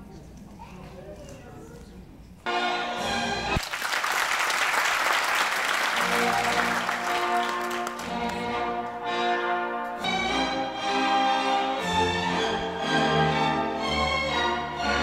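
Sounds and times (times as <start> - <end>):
orchestral music: 2.5 - 3.6, 5.9 - 15.0
audience applause: 3.6 - 8.6.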